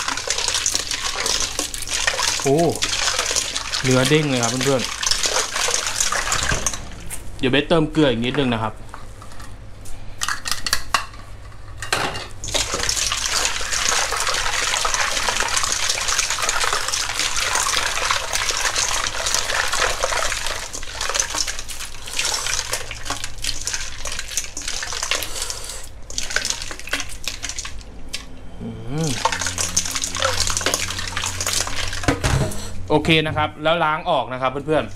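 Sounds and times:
water sloshing in metal bowl: 0.0 - 7.1, 12.4 - 25.3, 26.0 - 27.8, 29.1 - 32.6.

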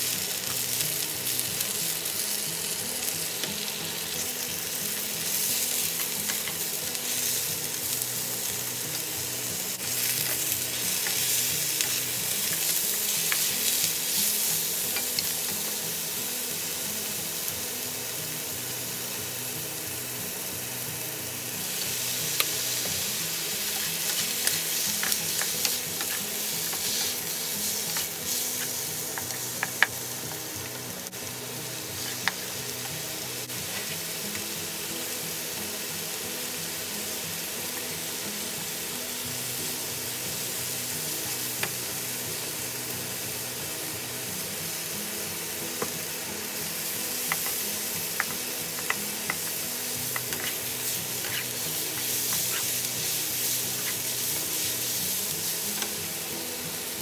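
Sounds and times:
food sizzling in oil: 0.0 - 57.0
spatulas stirring in pan: 23.6 - 29.8, 48.8 - 56.0.

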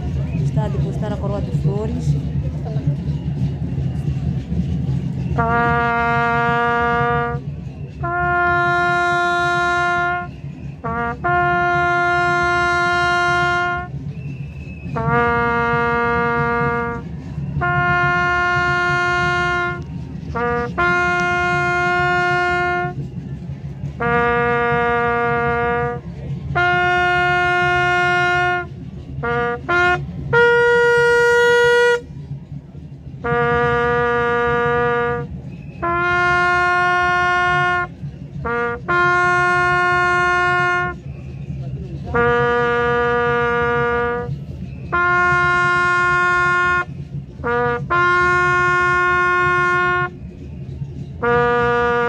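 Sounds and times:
trumpet playing slow call: 5.4 - 14.0, 15.0 - 23.1, 24.0 - 32.1, 33.2 - 41.0, 42.1 - 50.2, 51.2 - 52.0.

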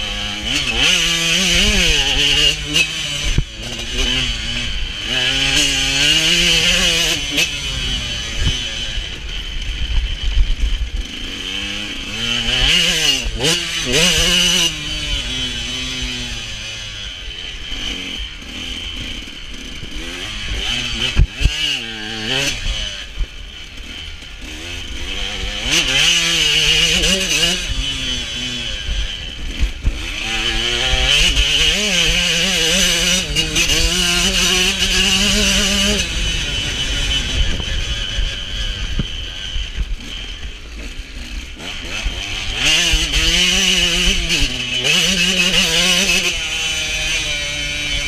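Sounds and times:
motocross bike engine revving: 0.0 - 48.0
wind on microphone: 33.5 - 40.3.

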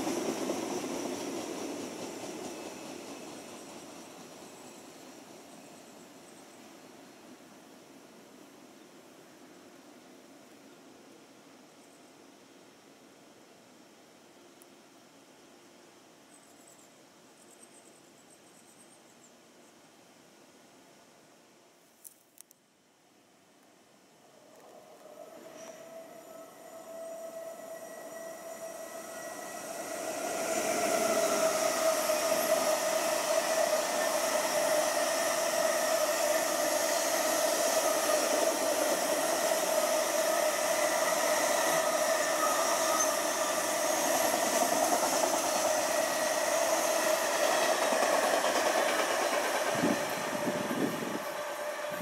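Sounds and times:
freight train passing: 0.0 - 11.2, 24.2 - 52.0.

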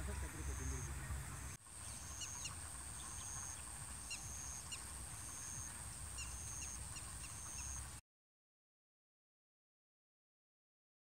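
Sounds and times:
bird chirps: 0.3 - 7.9.

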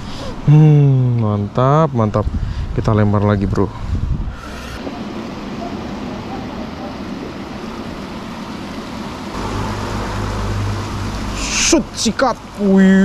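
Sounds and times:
low rumble: 9.3 - 11.7.

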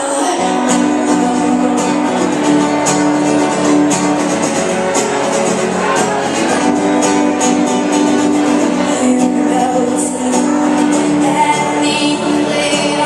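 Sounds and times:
girl singing: 0.0 - 2.4, 8.6 - 13.0
strummed acoustic guitar: 0.0 - 13.0.

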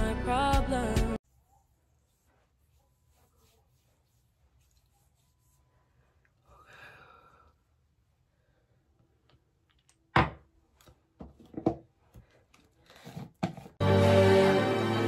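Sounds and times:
soft breath: 5.6 - 9.0.

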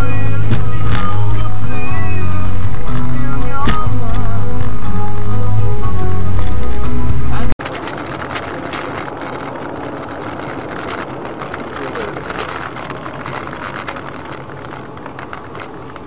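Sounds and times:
car engine hum and road noise: 0.0 - 16.0
scattered clicks and ticks: 7.6 - 16.0.

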